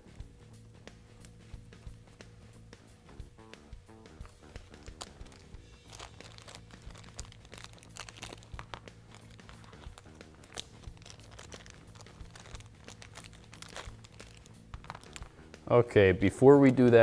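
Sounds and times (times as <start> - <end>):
plastic bag crinkling: 4.6 - 15.4.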